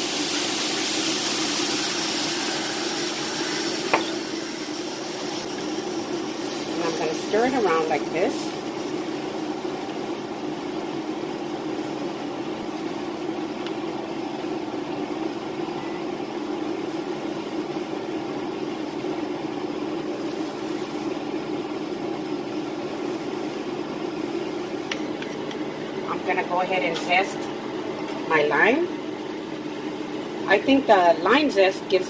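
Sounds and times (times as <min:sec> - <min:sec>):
beef simmering in a skillet: 0:00.0 - 0:15.6, 0:16.2 - 0:26.0.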